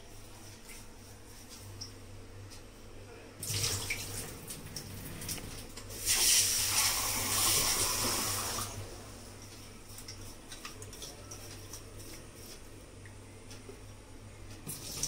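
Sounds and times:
water splashing in a sink: 3.4s - 8.8s, 14.6s - 15.0s.

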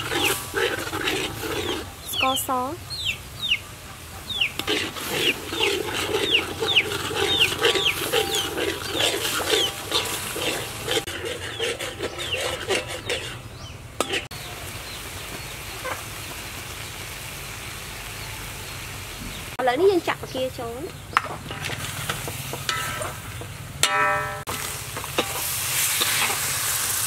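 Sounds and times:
spatula scraping a wok: 0.0s - 2.4s, 4.5s - 14.4s, 21.2s - 27.0s
sauce simmering hiss: 24.5s - 27.0s.

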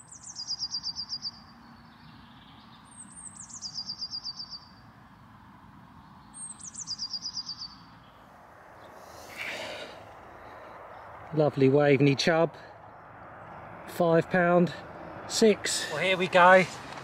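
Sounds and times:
small songbird singing: 0.0s - 9.5s.

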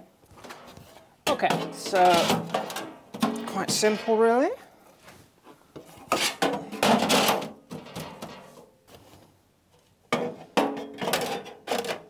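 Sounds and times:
plastic sheets scraping metal case: 0.4s - 4.3s, 6.0s - 8.6s.

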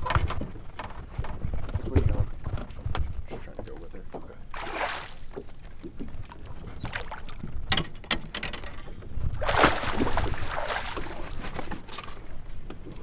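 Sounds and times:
water splashing: 4.5s - 7.6s, 9.4s - 12.2s.

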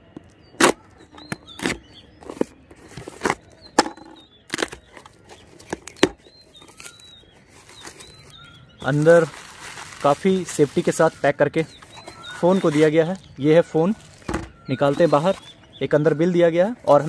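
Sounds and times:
packing tape ripping: 4.5s - 11.1s.

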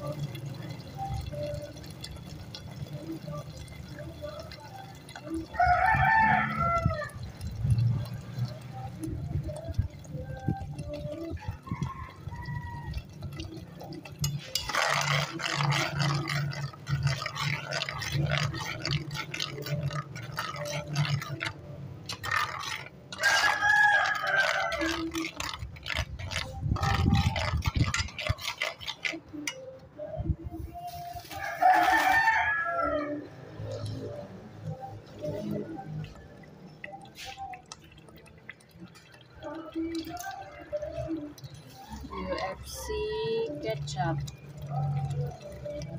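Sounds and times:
rooster crowing: 5.5s - 7.2s, 11.4s - 13.0s, 23.2s - 25.1s, 31.4s - 33.3s
spoon clinking in metal pot: 13.1s - 29.8s.

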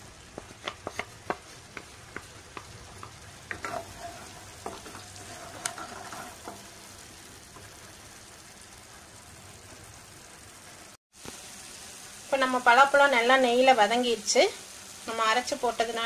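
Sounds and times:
light sizzle of frying: 0.0s - 16.0s
spatula tapping and scraping pan: 0.3s - 6.9s.

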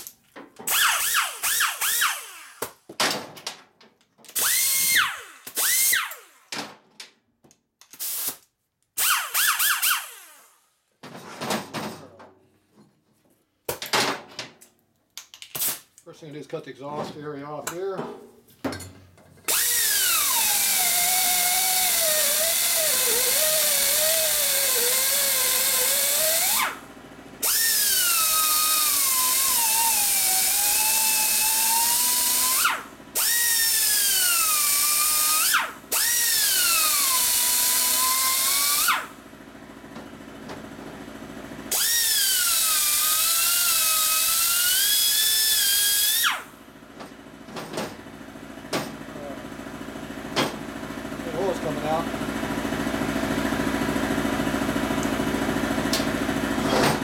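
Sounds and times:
die grinder cutting metal: 0.7s - 2.7s, 4.4s - 6.4s, 19.5s - 39.2s, 41.7s - 46.5s.

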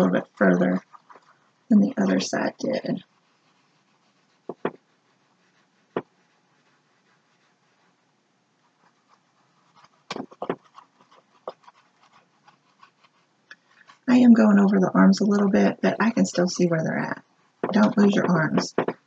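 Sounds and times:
faint room hiss: 0.0s - 19.0s
paintbrush tapping on canvas: 4.5s - 4.8s, 9.8s - 11.8s, 17.6s - 19.0s.

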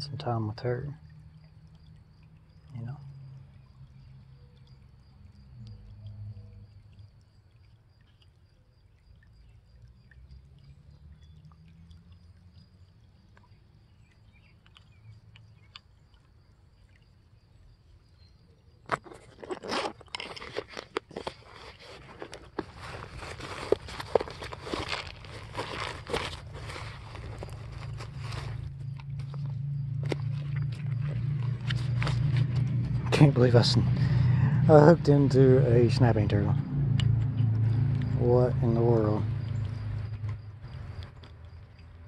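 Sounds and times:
fishing line handling ticks: 14.2s - 17.0s, 18.8s - 33.1s
loud crackling and rustling: 19.0s - 29.4s.

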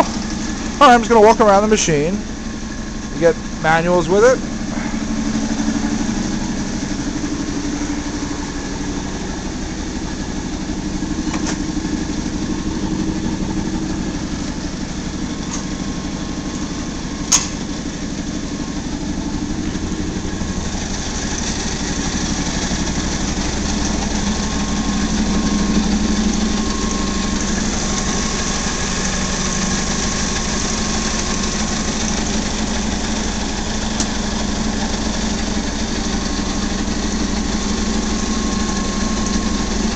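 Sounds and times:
sharp click: 17.3s - 17.6s.

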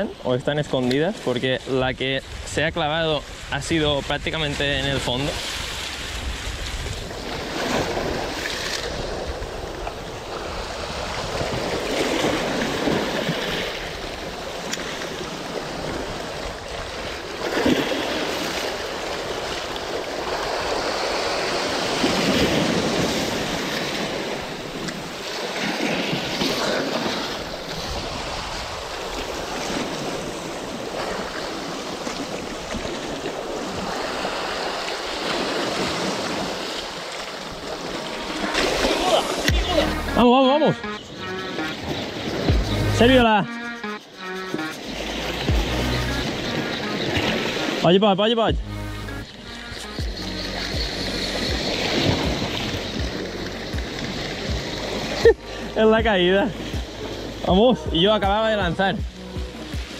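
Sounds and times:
waves washing on rocky shore: 0.0s - 40.7s.

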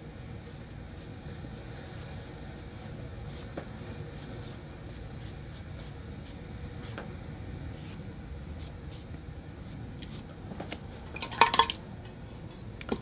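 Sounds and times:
steady low hum: 0.0s - 13.0s
brush swishing on paper: 0.8s - 7.1s, 7.7s - 10.3s.

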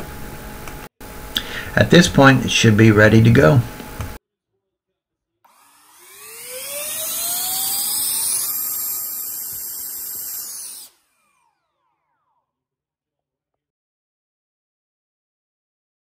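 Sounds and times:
electric ducted fans whining: 0.0s - 4.2s, 5.5s - 12.2s.

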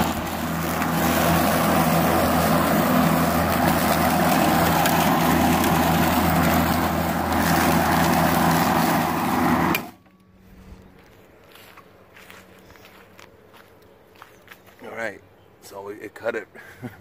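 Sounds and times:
lawn mower motor hum: 0.0s - 12.3s.

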